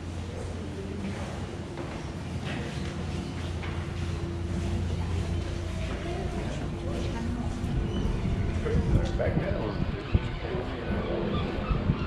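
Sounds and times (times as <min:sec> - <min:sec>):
crowd chatter: 0:00.0 - 0:12.0
low rumble: 0:04.3 - 0:11.0.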